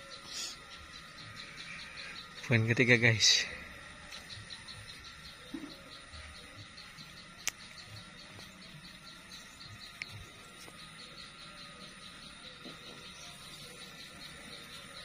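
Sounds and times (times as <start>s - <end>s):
insects chirping: 0.0s - 15.0s
sharp clicks: 7.4s - 7.8s.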